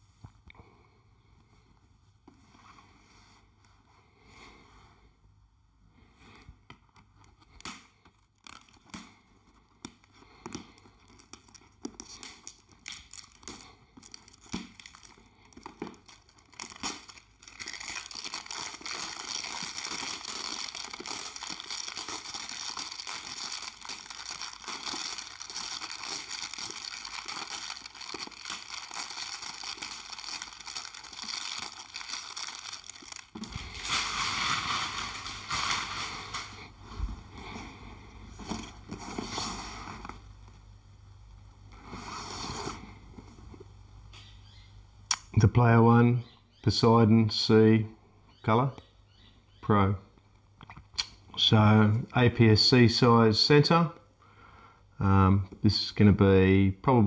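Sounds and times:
plastic wrap tearing and crinkling: 7.3 - 37.6.

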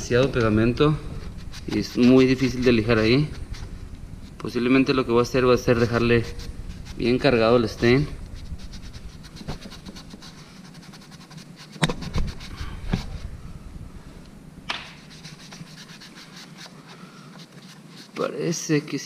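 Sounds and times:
rag scrubbing wood: 0.0 - 3.8, 15.0 - 18.3.

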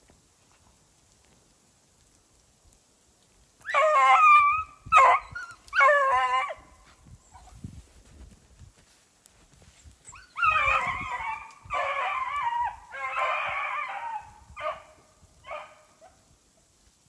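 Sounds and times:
hound baying: 10.2 - 16.2.

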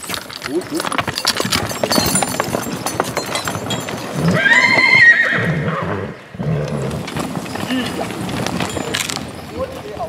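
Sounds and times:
hooves clacking: 0.0 - 10.0
horse whinnying: 3.6 - 8.2.

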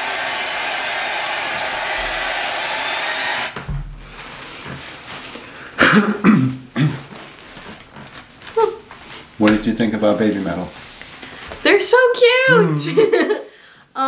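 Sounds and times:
concert crowd cheering and applauding: 0.0 - 3.6.

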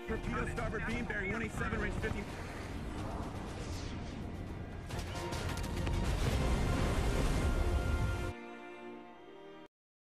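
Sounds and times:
background music: 0.0 - 9.7
steady low rumble: 0.2 - 7.5.

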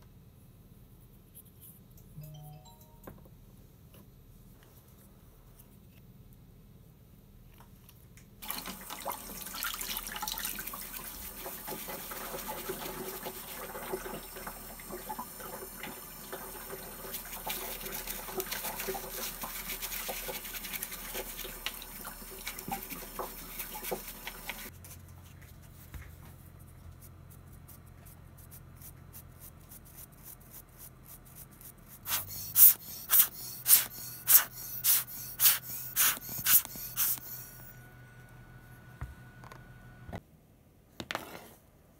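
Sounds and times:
brush scrubbing plastic: 9.3 - 14.2, 16.3 - 25.8, 26.6 - 37.6.

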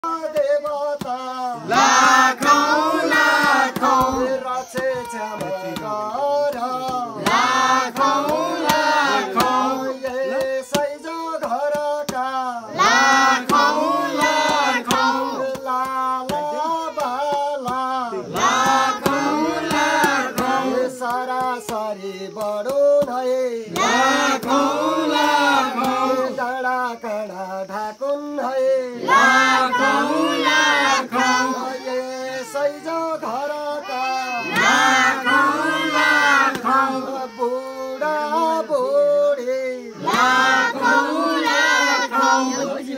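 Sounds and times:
group of boys and men singing: 0.0 - 42.9
hand clapping steady beat: 0.1 - 26.4, 34.5 - 37.8, 40.0 - 42.9.

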